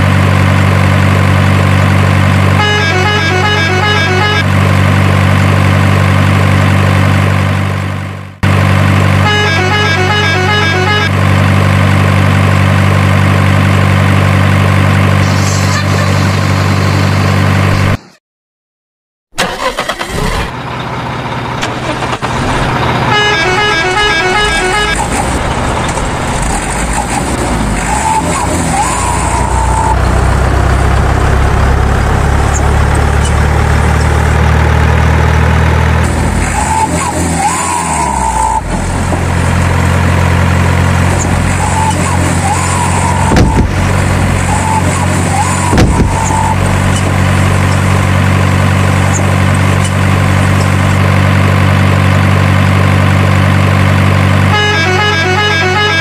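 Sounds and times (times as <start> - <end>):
truck engine running: 0.0 - 18.0, 19.4 - 56.0
truck horn: 2.3 - 5.0, 9.0 - 11.4, 15.3 - 17.2, 22.6 - 25.4, 27.8 - 31.8, 36.5 - 38.8, 40.0 - 50.0, 54.3 - 56.0.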